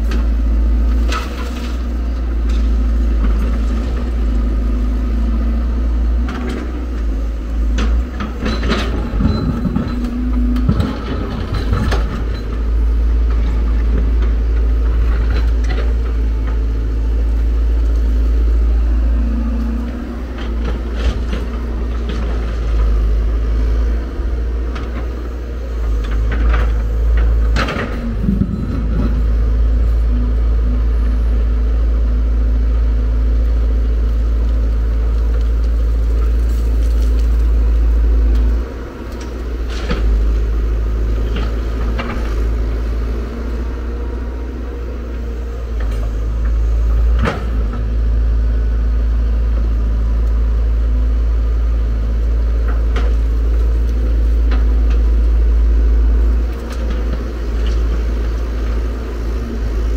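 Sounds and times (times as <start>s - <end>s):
excavator diesel engine running: 0.0s - 59.9s
stony earth clattering into metal: 7.7s - 12.6s.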